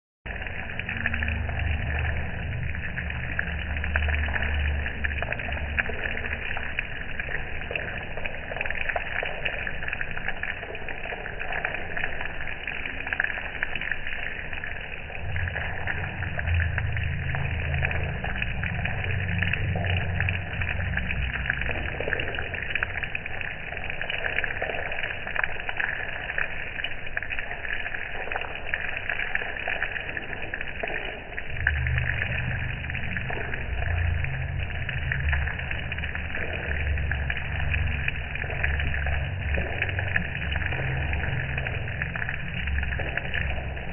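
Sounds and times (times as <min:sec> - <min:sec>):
low rumble: 0:00.3 - 0:43.9
rain pattering on a roof: 0:00.3 - 0:43.9.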